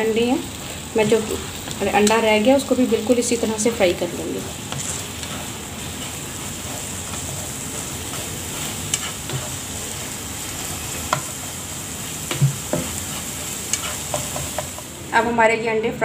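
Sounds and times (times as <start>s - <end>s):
eggs sizzling in oil: 0.0s - 15.3s
spatula scraping a pan: 3.8s - 14.9s.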